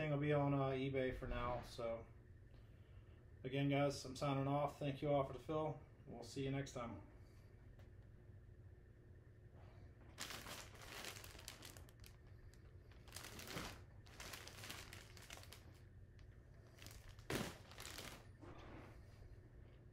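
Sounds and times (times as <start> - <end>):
plastic bag crinkling: 10.1 - 18.4.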